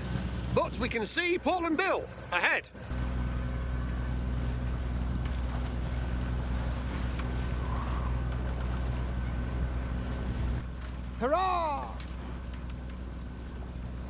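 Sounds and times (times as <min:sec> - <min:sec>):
boat engine droning: 0:00.0 - 0:14.0
wind: 0:00.0 - 0:14.0.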